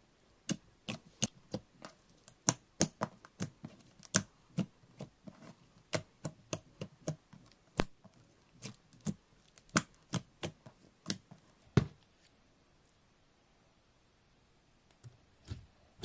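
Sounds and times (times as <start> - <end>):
slime clicking and popping: 8.6 - 11.2.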